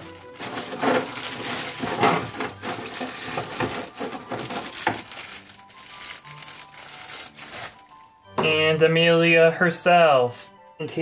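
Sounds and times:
hard plastic pieces knocking: 0.0s - 6.6s
plastic packaging crinkling: 0.0s - 8.2s.

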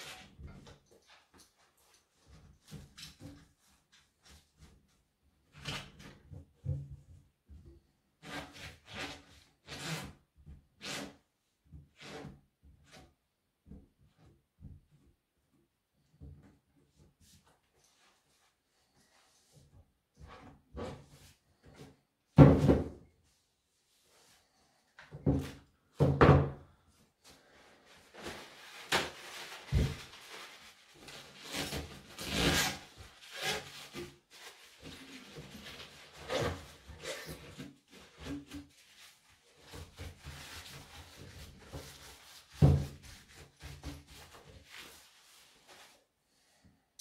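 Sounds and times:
knocks and thuds on workbench: 22.4s - 23.0s, 25.2s - 26.6s
rag rubbing and rustling: 27.4s - 46.0s.

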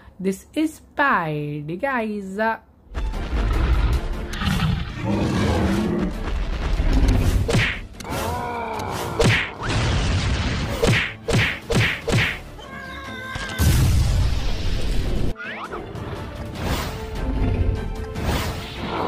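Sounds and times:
sharp punch hits: 7.5s - 7.9s, 9.2s - 12.4s
falling groan-like cry: 8.0s - 9.7s.

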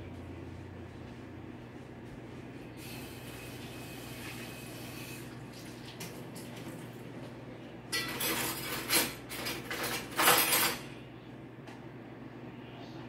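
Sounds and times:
steady low hum: 0.0s - 13.0s
kitchenware clattering: 7.9s - 11.0s.

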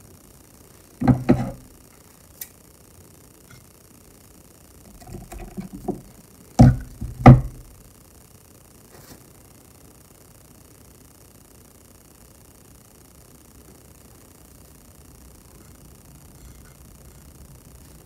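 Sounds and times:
objects knocking on hard surface: 1.0s - 1.6s, 4.9s - 7.7s.

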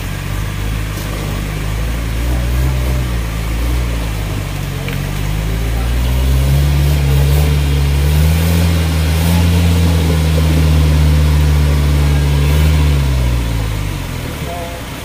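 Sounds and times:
engine running at raised revs: 0.0s - 15.0s.

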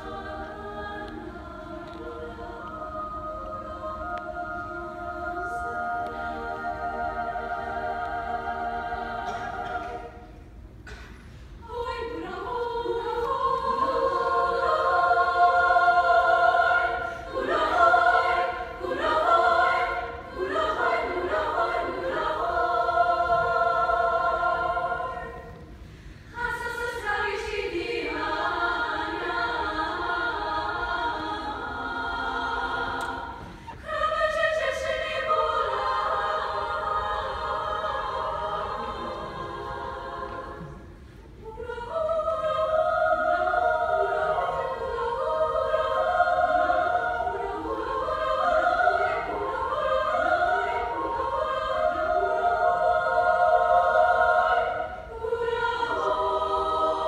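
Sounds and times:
women's choir singing a cappella: 0.0s - 57.0s.

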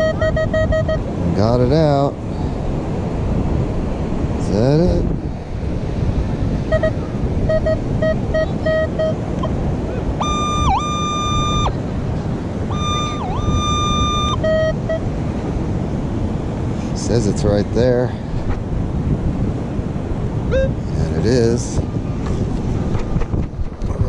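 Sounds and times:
metal detector beeping: 0.0s - 1.1s, 6.7s - 9.6s, 10.2s - 11.8s, 12.7s - 15.1s, 20.5s - 20.8s
wind: 0.0s - 24.0s.

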